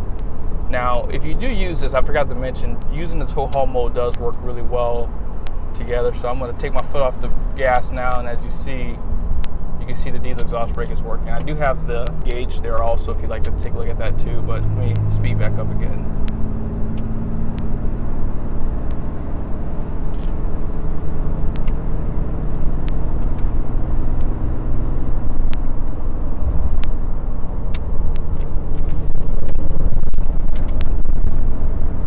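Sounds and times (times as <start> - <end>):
diesel truck engine accelerating: 0.0 - 32.0
road noise: 0.0 - 32.0
sharp clicks: 9.4 - 9.6, 16.1 - 17.8, 21.4 - 21.9, 27.6 - 31.4.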